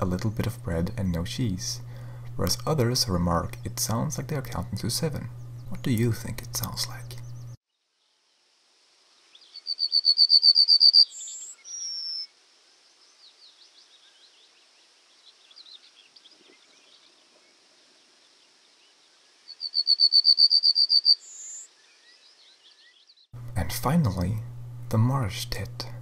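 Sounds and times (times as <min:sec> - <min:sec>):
faint bird chirps: 0:09.1 - 0:23.3
bird singing high notes: 0:09.5 - 0:12.3, 0:19.5 - 0:23.0.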